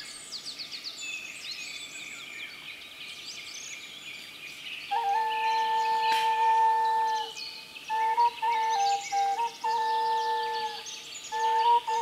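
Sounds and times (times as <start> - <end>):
songbirds chirping: 0.0 - 12.0
ocarina long held note: 4.9 - 12.0.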